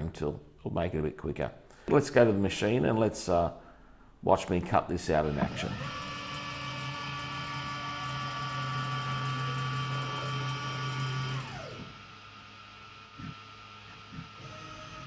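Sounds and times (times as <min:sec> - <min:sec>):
low machine hum: 0:05.1 - 0:15.0
milling machine motor whining: 0:05.2 - 0:15.0.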